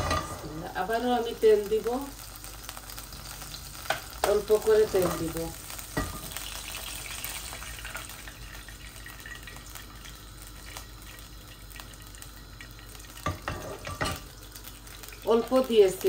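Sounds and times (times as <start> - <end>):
oil trickling into a pan: 5.8 - 15.7.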